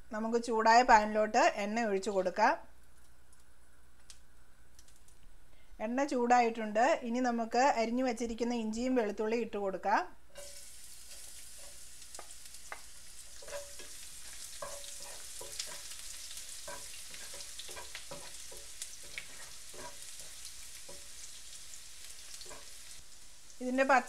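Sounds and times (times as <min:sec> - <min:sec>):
food sizzling in hot oil: 0:10.3 - 0:24.0
utensil scraping and knocking pan: 0:10.4 - 0:21.2.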